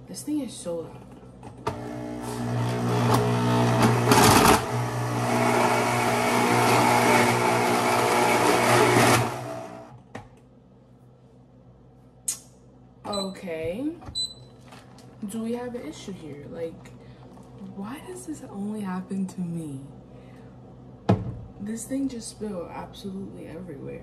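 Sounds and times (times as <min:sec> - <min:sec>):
blender motor running: 0:01.7 - 0:09.9.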